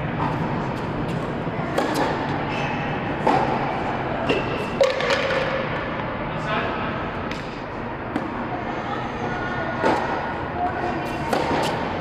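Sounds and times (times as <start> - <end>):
tennis ball struck by racket: 1.2 - 2.3, 11.1 - 11.9.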